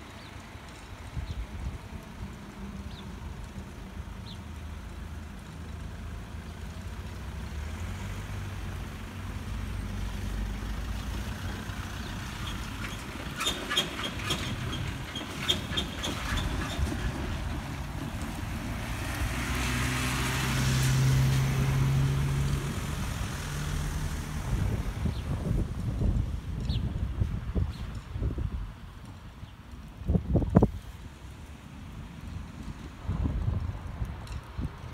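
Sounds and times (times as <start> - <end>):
car engines at low speed: 0.0 - 34.9
vehicle passing close: 2.4 - 26.6
wheels clacking over rails: 8.6 - 21.4.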